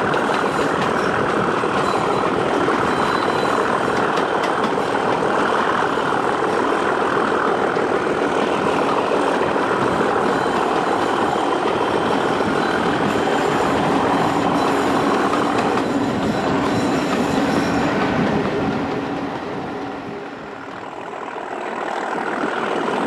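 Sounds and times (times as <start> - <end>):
diesel locomotive engine: 0.0 - 23.0
train wheels on rails: 0.0 - 23.0
wind rushing: 7.9 - 20.7.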